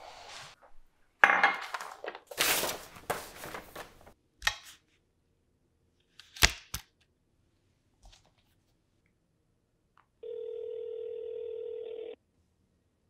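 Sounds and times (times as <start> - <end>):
paper rustling: 1.6 - 4.2.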